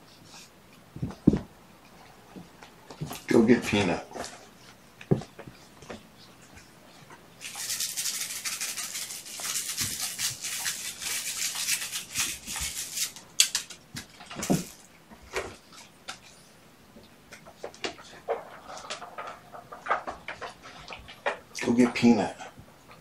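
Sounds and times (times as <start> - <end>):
dry rapid scratching: 7.4 - 13.2.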